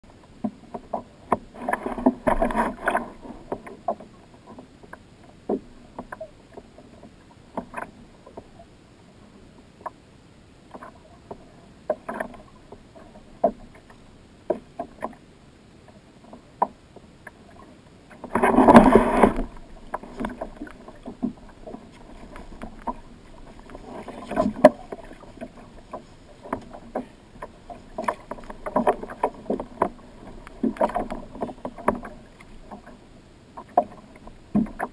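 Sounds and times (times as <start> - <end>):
waves slapping against kayak hull: 0.3 - 8.5, 16.2 - 34.9.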